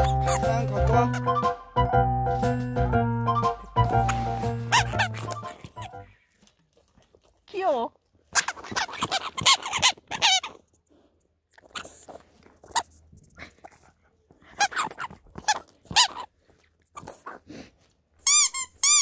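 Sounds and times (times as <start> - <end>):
toy squeaks: 0.0 - 1.4, 3.8 - 6.1, 8.3 - 10.6, 14.5 - 16.3, 18.2 - 19.0
dog chewing toy: 3.9 - 7.5, 8.2 - 10.7, 11.5 - 17.5.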